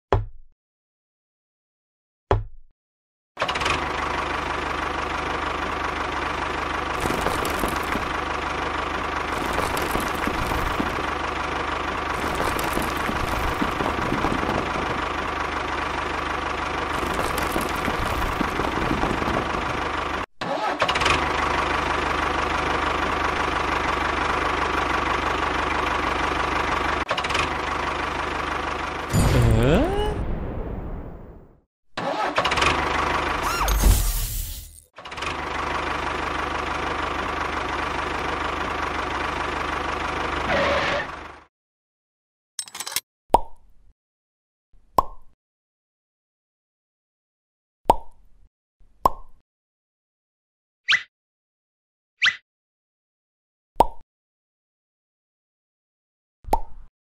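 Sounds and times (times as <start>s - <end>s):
engine running steadily: 3.4s - 20.2s, 20.9s - 29.8s, 32.5s - 33.8s, 34.6s - 41.4s.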